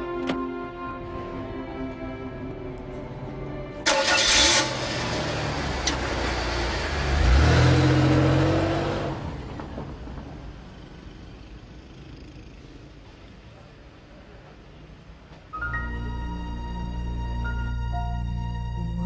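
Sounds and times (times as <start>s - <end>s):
sports car engine revving: 4.0s - 9.6s.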